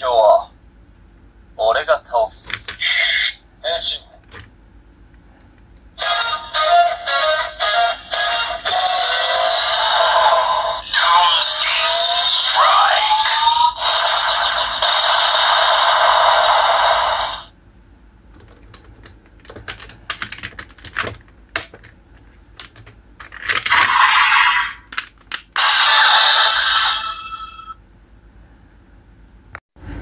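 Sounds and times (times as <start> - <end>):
harsh electronic blare: 6.1 - 17.5, 23.7 - 24.9, 25.6 - 27.8
plastic clicks and snaps: 22.6 - 23.7, 24.9 - 25.6.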